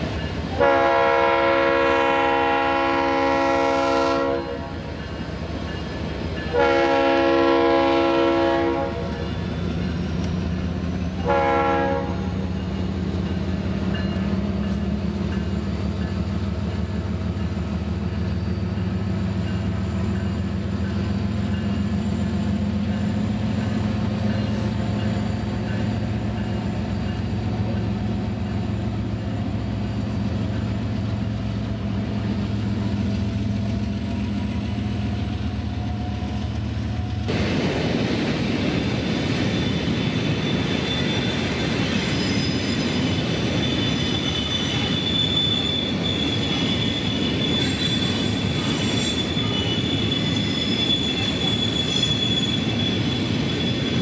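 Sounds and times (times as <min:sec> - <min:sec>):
diesel locomotive engines droning: 0:00.0 - 0:54.0
high wheel squeal: 0:12.2 - 0:33.6, 0:39.3 - 0:54.0.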